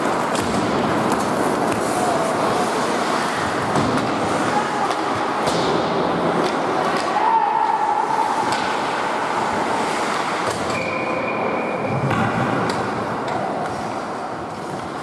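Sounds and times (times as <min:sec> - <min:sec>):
stick or puck clacks: 0:00.0 - 0:02.0, 0:03.6 - 0:07.2, 0:08.4 - 0:09.0, 0:12.0 - 0:15.0
skates scraping on ice: 0:00.0 - 0:15.0
faint thin whistle tone: 0:10.7 - 0:11.9.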